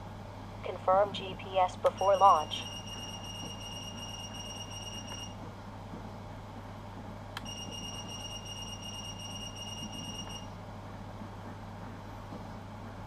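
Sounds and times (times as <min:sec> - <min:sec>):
high steady buzzer beep: 0:02.0 - 0:05.3, 0:07.4 - 0:10.5.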